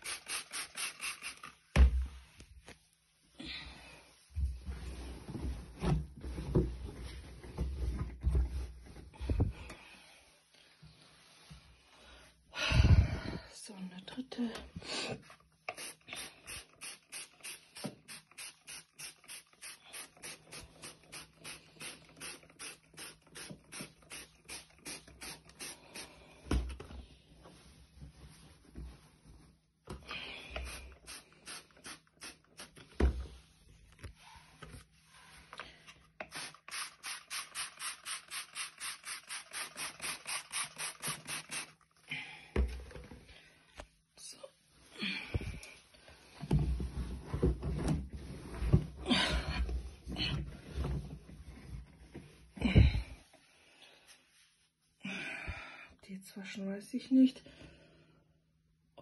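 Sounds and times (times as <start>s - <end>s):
spray bottle hissing: 0.0s - 1.6s, 15.7s - 26.1s, 30.7s - 32.8s, 36.2s - 41.8s.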